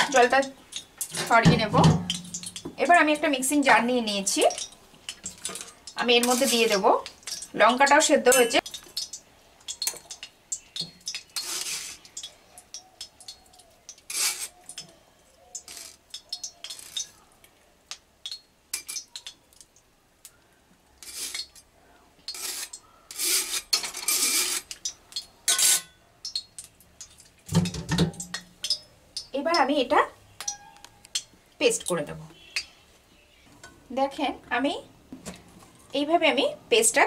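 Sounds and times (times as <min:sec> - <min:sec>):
metal spatula scraping and clinking: 0:25.5 - 0:26.0.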